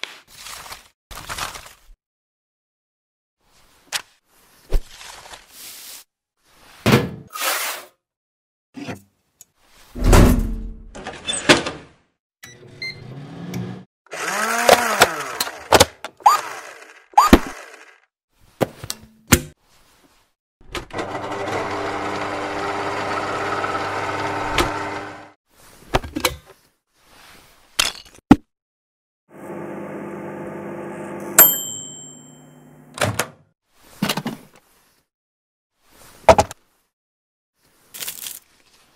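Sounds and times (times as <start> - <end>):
microwave oven humming: 29.3 - 31.4, 32.1 - 33.0
microwave bell ding: 31.4 - 32.8.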